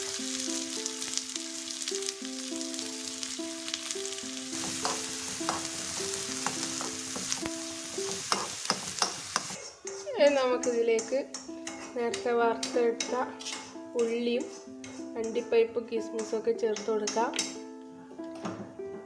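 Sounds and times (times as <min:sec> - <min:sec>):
simple background melody: 0:00.0 - 0:08.7, 0:09.6 - 0:19.0
onions sizzling in hot oil: 0:00.0 - 0:09.6
spatula stirring: 0:04.5 - 0:12.2.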